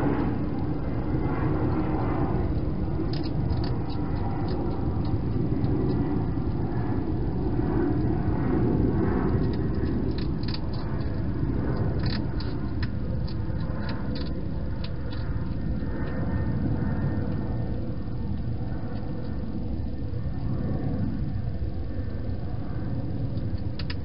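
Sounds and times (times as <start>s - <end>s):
low rumble: 0.0s - 24.0s
hedgehog chewing: 2.4s - 6.6s, 9.3s - 16.3s.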